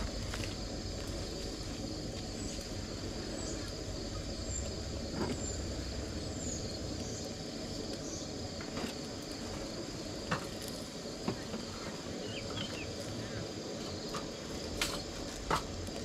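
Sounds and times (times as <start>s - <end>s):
crickets and insects chirping: 0.0s - 16.0s.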